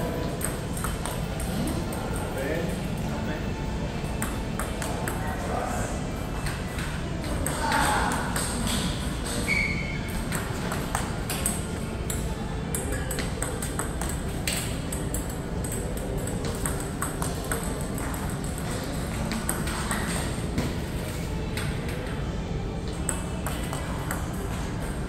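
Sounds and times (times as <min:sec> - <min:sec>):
table tennis ball clicks: 0:00.3 - 0:02.4, 0:10.2 - 0:20.3.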